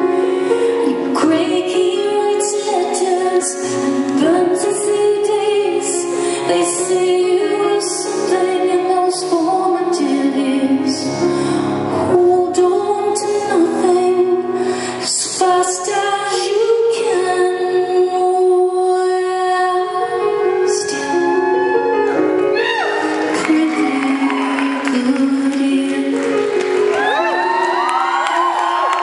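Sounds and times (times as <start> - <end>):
grand piano: 0.0 - 29.0
woman singing long notes: 12.0 - 29.0.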